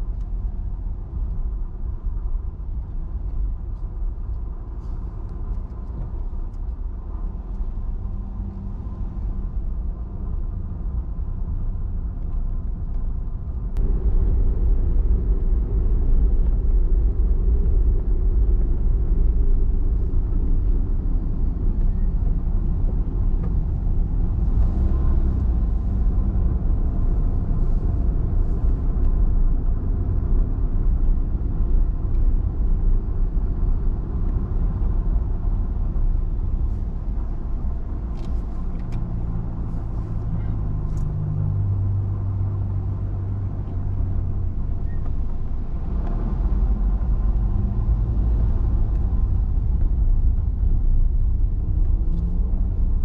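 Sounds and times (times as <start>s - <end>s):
car engine and road rumble: 0.0s - 53.0s.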